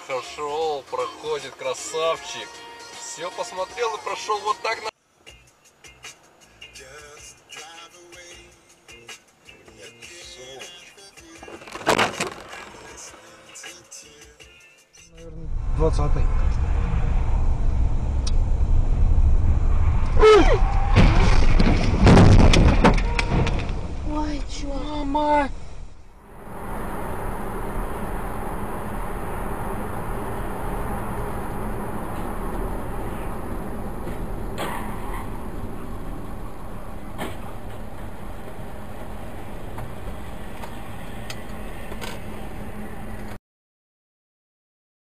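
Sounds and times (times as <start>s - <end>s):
car crashing: 11.4s - 13.2s, 16.3s - 41.0s
road rumble inside car: 15.1s - 43.4s
person crying out: 20.2s - 20.6s.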